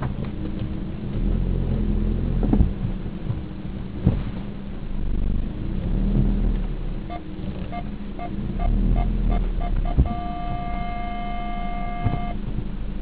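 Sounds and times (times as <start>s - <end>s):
car engine running: 0.0s - 13.0s
parking sensor beeping: 7.1s - 12.4s.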